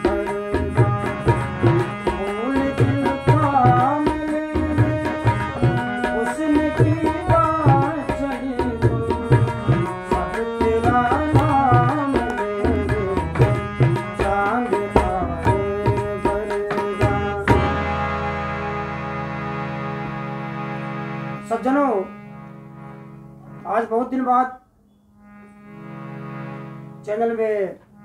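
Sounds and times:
man singing: 0.0s - 18.4s
tabla drumming: 0.0s - 18.6s
harmonium: 0.0s - 28.0s.

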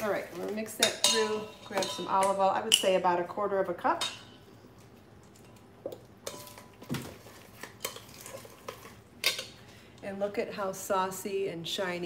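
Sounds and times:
metal spoon stirring in metal bowl: 0.0s - 3.0s, 5.2s - 9.6s.

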